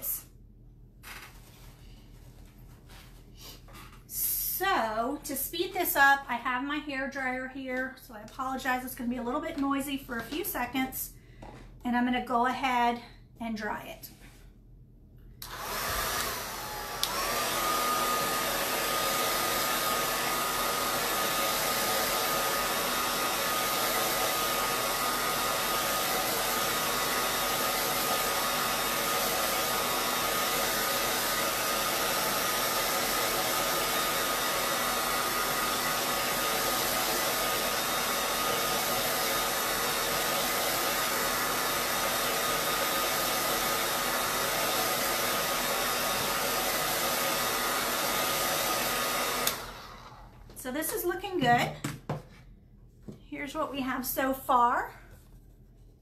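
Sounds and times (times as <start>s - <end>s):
hair dryer blowing: 15.4s - 51.8s.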